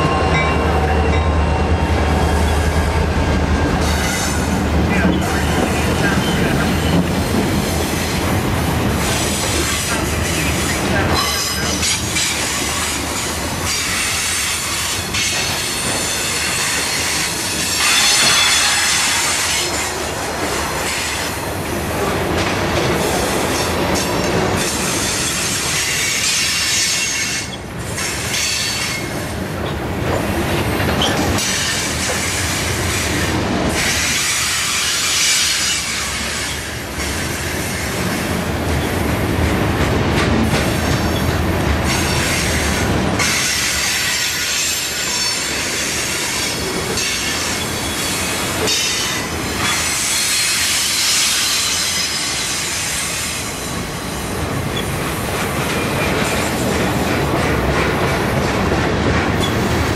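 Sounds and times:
steel wheels clattering over rail joints: 54.6 - 59.9.

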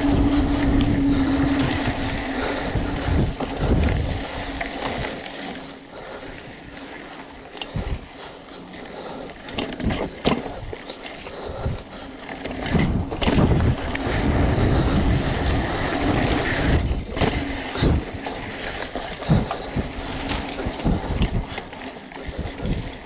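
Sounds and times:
tyres rolling over dirt: 0.0 - 5.9, 8.6 - 23.0
wind buffeting microphone: 0.0 - 6.8, 9.5 - 23.0
bike knocks and rattles: 9.4 - 23.0.

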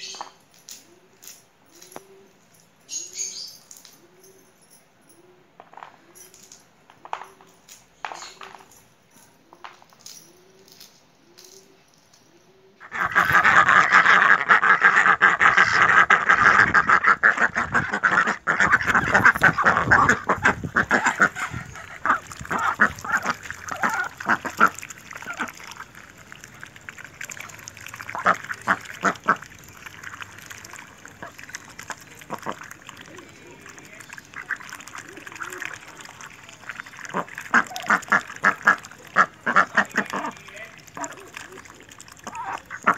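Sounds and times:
duck calls: 12.8 - 25.7, 37.1 - 40.4
ducks dabbling bills: 12.8 - 42.9.

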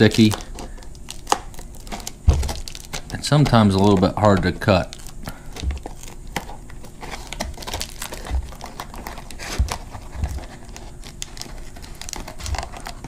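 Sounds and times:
scissors snipping foil: 0.0 - 6.5
foil crinkling: 0.0 - 13.0.

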